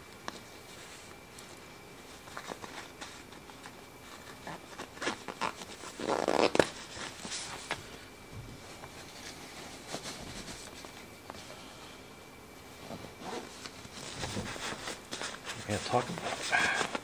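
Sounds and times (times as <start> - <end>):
cloth rustling: 0.3 - 11.8, 12.6 - 17.0
zipper being pulled: 5.3 - 6.7.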